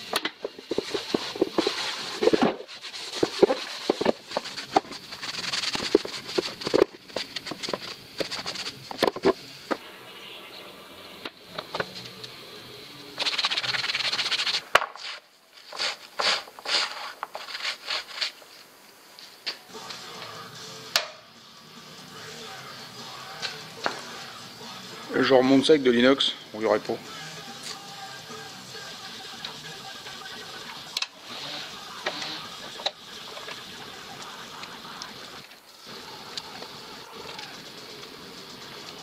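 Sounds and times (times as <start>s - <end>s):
rag rubbing plastic: 0.0s - 9.4s, 13.2s - 18.4s.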